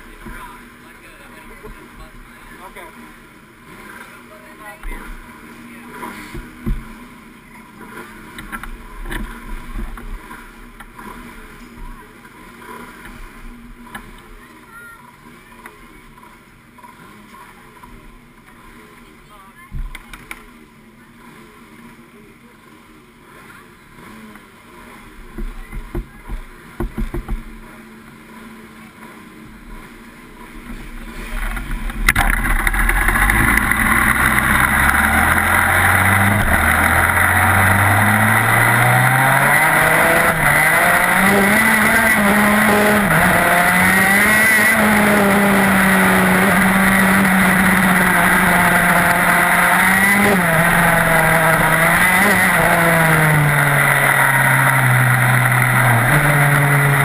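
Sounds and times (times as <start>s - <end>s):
kart engine accelerating: 23.2s - 57.0s.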